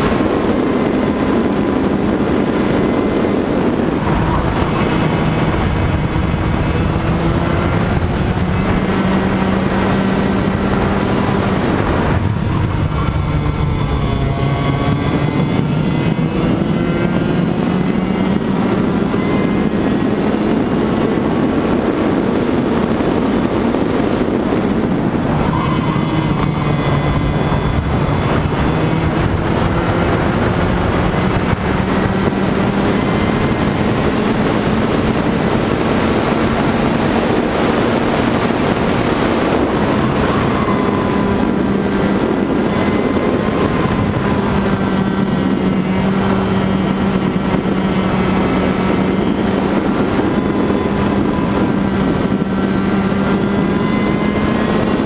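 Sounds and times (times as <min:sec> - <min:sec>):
kart engine at high revs: 0:00.0 - 0:55.0.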